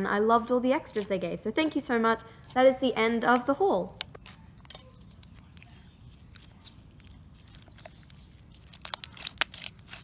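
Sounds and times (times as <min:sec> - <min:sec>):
slime squishing with clicks and pops: 0:03.9 - 0:10.0.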